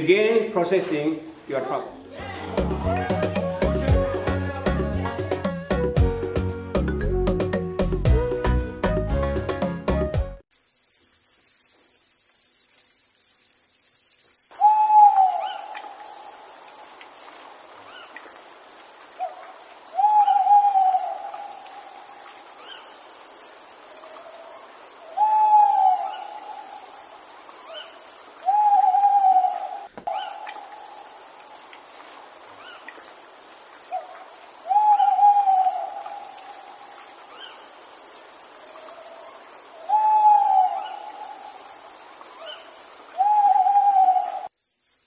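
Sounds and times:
long hooting call: 2.2s - 6.0s, 14.5s - 44.5s
insect trill: 2.3s - 6.5s, 10.5s - 45.0s.

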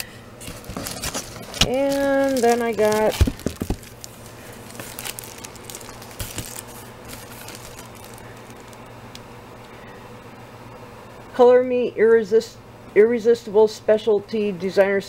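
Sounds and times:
cellophane crinkling: 0.0s - 9.3s
faint steady hum: 0.0s - 15.0s
knocks in cardboard box: 3.1s - 3.9s.

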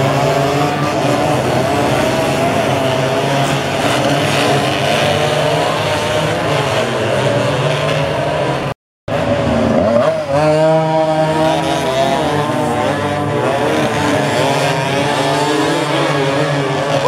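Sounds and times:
racing motorcycle engines: 0.0s - 17.0s.

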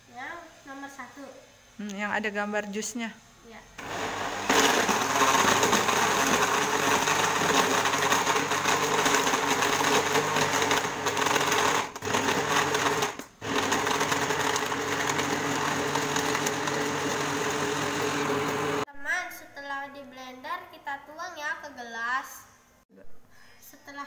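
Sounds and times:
blender motor running: 3.8s - 18.9s.

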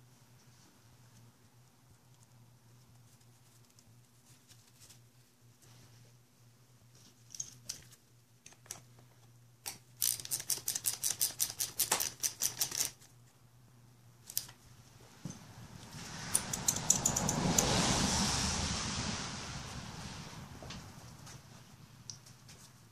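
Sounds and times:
ratcheting wrench clicking: 9.7s - 13.0s, 16.3s - 17.4s.

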